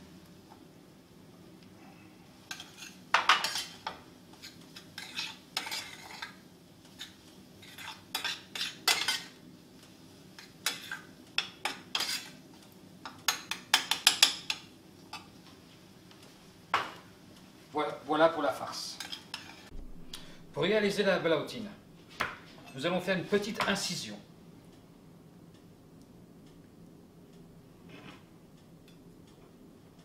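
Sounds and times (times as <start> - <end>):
spoon scraping metal pan: 2.5 - 3.8, 4.4 - 6.3, 7.6 - 9.3, 11.9 - 12.3.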